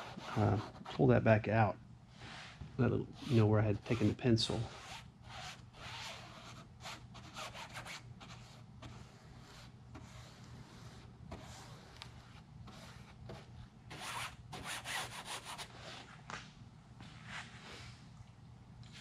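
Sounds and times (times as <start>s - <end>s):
pencil rubbing on fabric: 0.0s - 1.0s, 3.2s - 15.8s
low steady hum: 0.0s - 19.0s.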